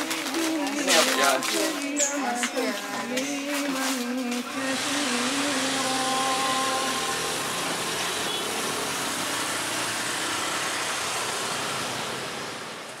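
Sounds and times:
small motorcycle engines passing: 4.4 - 13.0.

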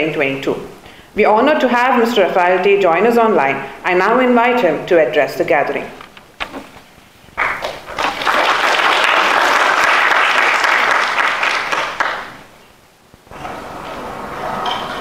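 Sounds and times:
steady background hum: 0.0 - 15.0
audience applauding: 7.4 - 12.4.

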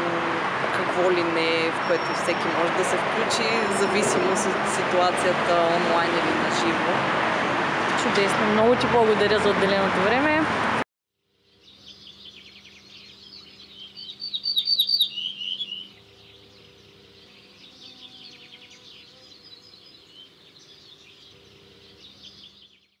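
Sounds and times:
small birds chirping: 11.5 - 23.0.

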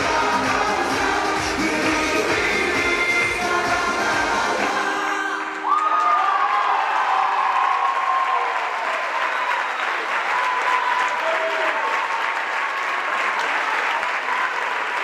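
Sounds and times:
audience clapping: 0.0 - 15.0
people cheering: 5.3 - 15.0.

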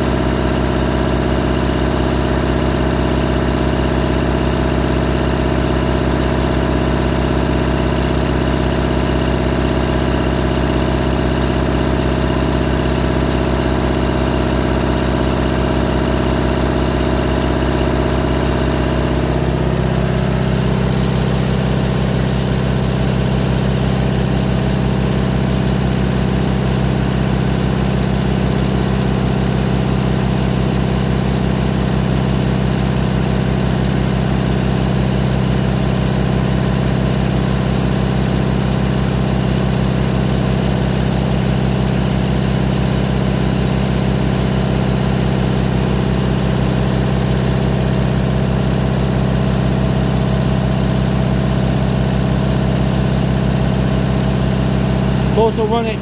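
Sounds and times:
generator engine running: 0.0 - 56.0.

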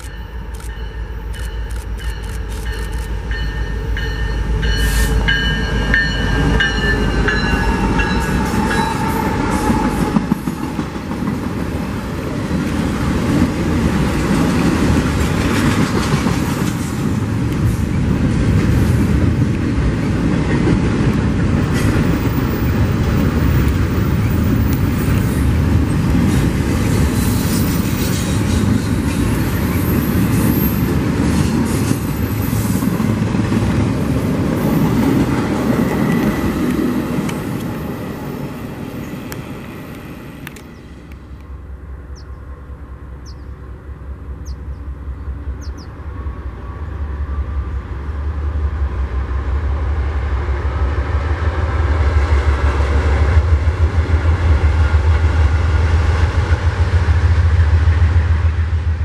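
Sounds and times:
freight train wheels rolling: 0.0 - 41.6
freight train rumbling: 0.0 - 59.0.

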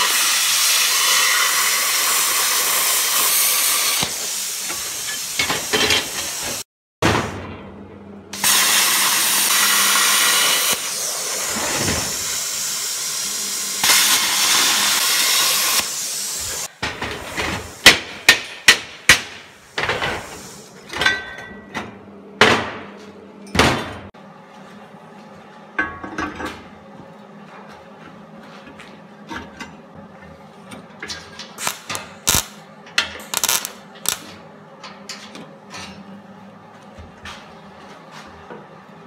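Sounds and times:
welding arc crackling hiss: 0.0 - 6.6, 8.4 - 20.8, 31.6 - 32.6, 33.2 - 34.4.

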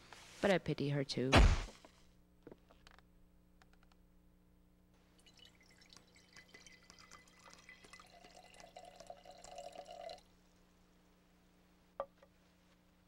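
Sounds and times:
water trickling and dripping: 5.1 - 10.3.

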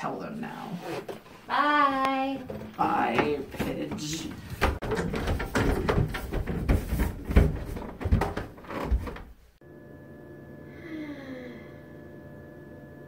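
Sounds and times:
footsteps on carpeted stairs: 1.7 - 9.6
electrical hum: 9.1 - 13.0.

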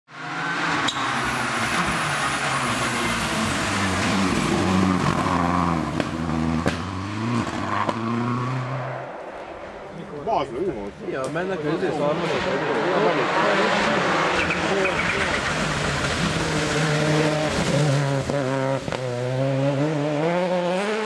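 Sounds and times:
rally car engine at high revs: 0.1 - 9.1, 11.7 - 21.0.

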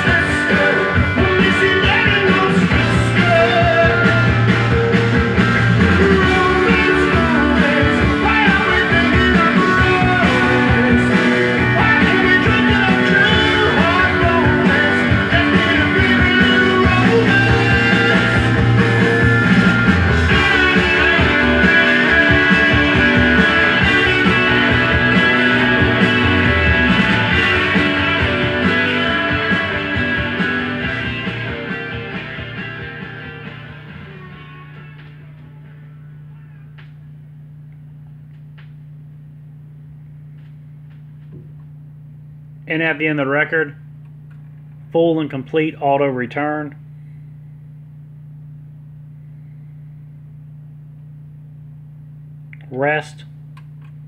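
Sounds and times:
rock music from vinyl record: 0.0 - 37.7.

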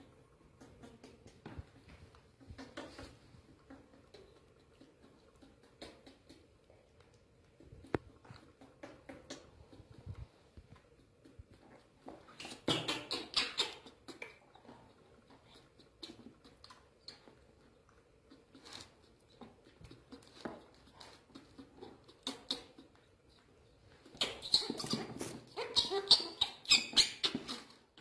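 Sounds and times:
baby monkeys squeaking: 12.4 - 14.3, 24.0 - 27.8.

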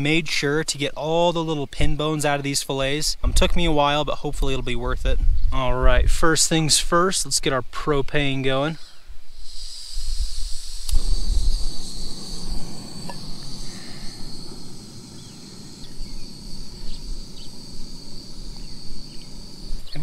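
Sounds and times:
burner flame hissing: 8.3 - 20.0
high-pitched insect trill: 8.8 - 20.0.

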